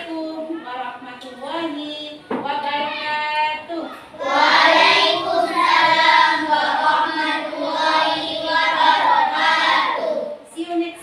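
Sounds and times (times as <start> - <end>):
children singing in unison: 4.2 - 10.3.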